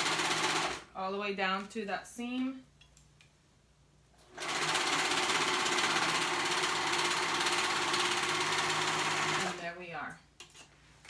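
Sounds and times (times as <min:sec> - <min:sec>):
overlock sewing machine running: 0:00.0 - 0:00.8, 0:04.3 - 0:09.6.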